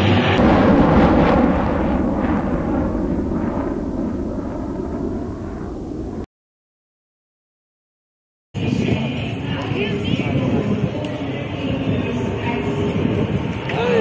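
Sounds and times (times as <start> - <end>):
helicopter rotor and engine rumble: 8.6 - 14.0.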